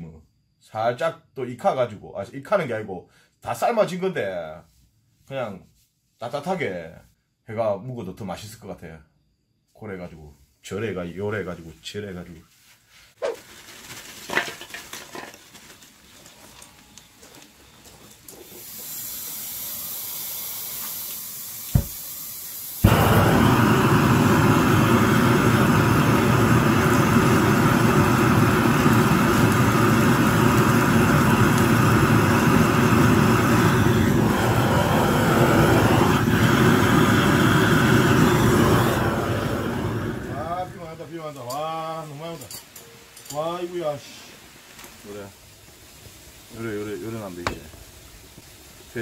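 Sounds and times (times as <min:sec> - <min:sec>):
gas hissing: 0:18.2 - 0:41.3, 0:46.4 - 0:49.0
blowtorch flame roaring: 0:18.3 - 0:41.0.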